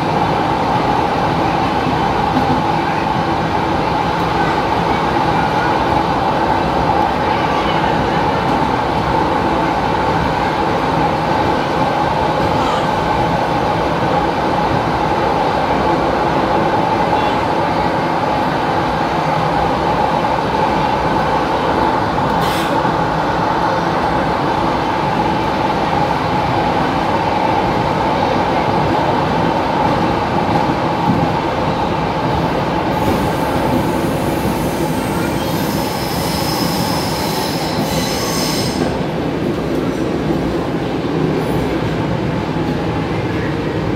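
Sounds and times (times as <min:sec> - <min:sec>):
high squeal: 0:34.8 - 0:38.9.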